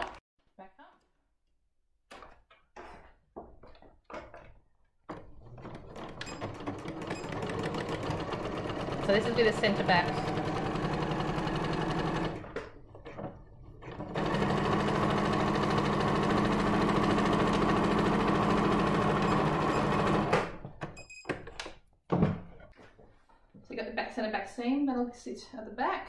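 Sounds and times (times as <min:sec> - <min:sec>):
sewing machine stitching: 0:05.1 - 0:20.6.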